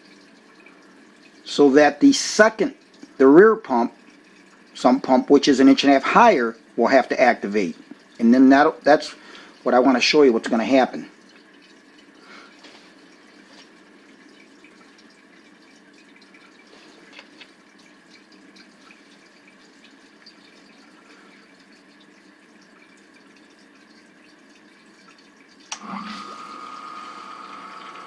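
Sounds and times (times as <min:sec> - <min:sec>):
water dripping: 0:00.0 - 0:28.0
water filling from hose: 0:00.0 - 0:28.0
sump pump thump and whine: 0:25.7 - 0:28.0.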